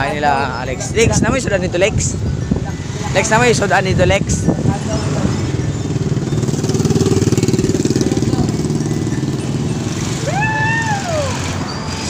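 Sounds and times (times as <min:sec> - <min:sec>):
small motorcycle engine running: 0:04.5 - 0:12.0.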